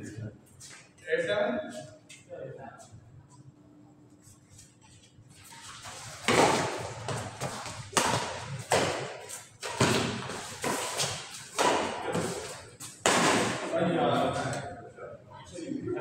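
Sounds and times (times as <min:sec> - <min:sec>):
badminton rackets hitting shuttlecock: 0:06.2 - 0:13.7.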